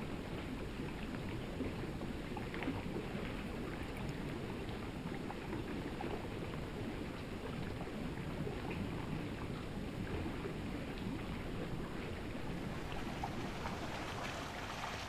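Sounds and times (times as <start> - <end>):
river water flowing: 7.2 - 15.0.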